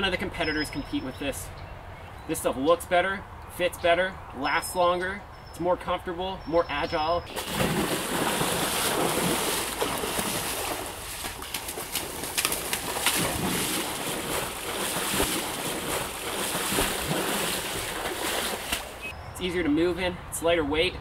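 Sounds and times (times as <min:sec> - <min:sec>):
muddy water sloshing and splashing: 0:07.3 - 0:19.1.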